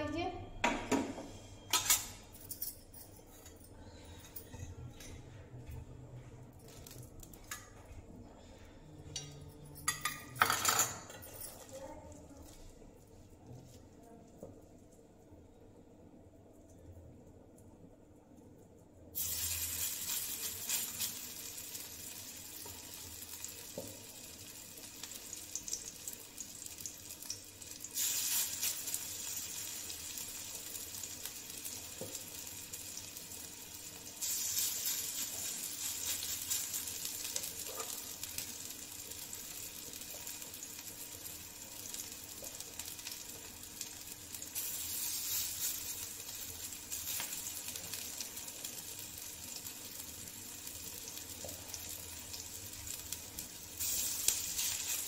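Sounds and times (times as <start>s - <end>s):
patties sizzling in oil: 19.0s - 55.0s.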